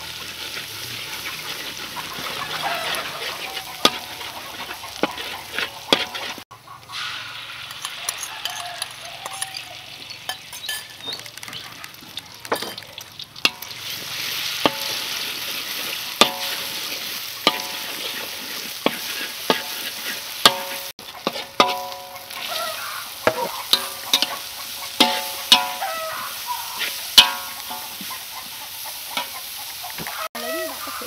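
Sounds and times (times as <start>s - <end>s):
egg sizzling in hot oil: 0.0s - 31.0s
metal spatula striking a wok: 3.4s - 6.4s, 13.4s - 13.8s, 14.6s - 15.2s, 16.1s - 26.1s, 26.8s - 28.2s.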